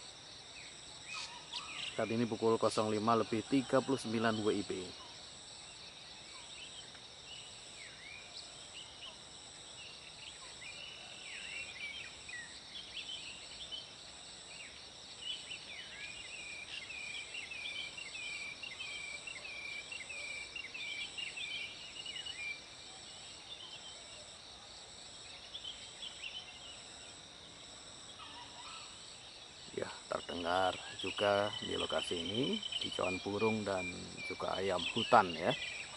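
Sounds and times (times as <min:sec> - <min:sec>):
birds chirping: 0:00.0 - 0:14.0, 0:25.3 - 0:35.9
high insect buzz: 0:00.0 - 0:35.9.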